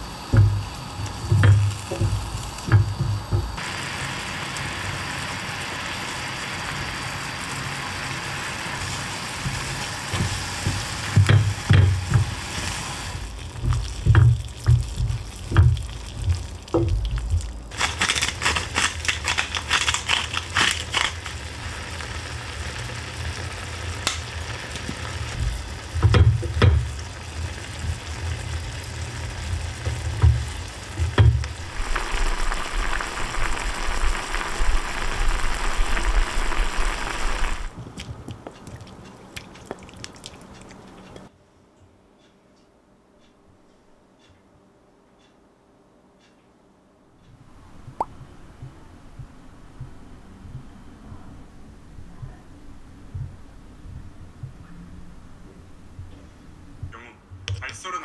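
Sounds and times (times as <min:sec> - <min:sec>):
stew bubbling and sizzling: 0:00.0 - 0:41.3.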